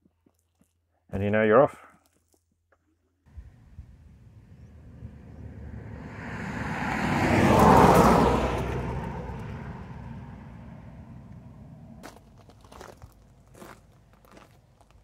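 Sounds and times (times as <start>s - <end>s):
vehicle passing at speed: 3.3s - 12.2s.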